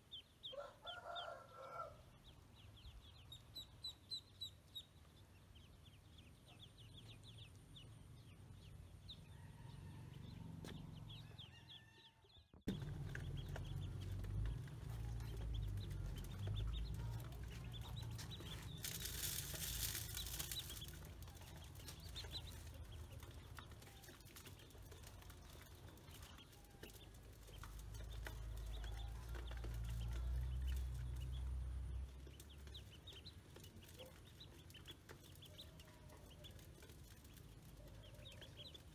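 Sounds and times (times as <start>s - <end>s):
ducklings peeping: 0.0s - 1.4s, 2.1s - 38.9s
grain pattering into metal bowl: 16.1s - 22.9s.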